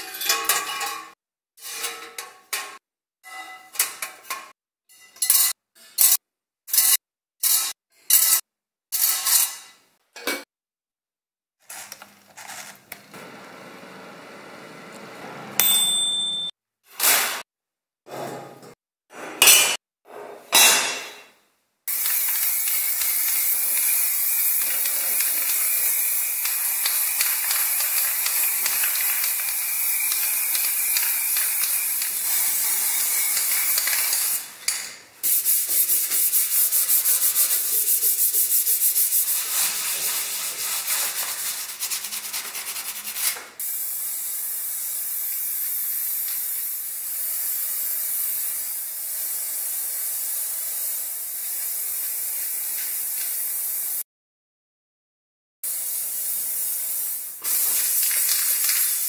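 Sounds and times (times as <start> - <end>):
spray paint can hissing: 21.9 - 34.5, 35.2 - 41.6, 43.6 - 54.0, 55.7 - 59.0.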